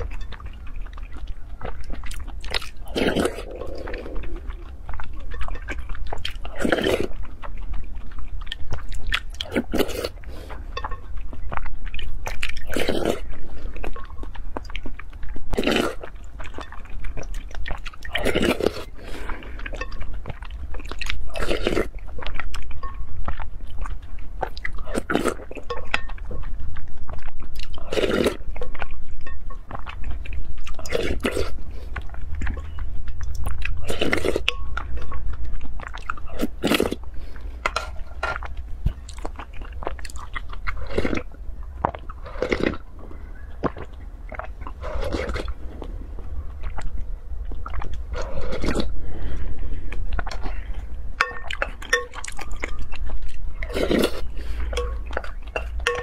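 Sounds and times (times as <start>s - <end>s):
person slurping and chewing: 0.0s - 56.0s
steady low hum: 0.0s - 56.0s.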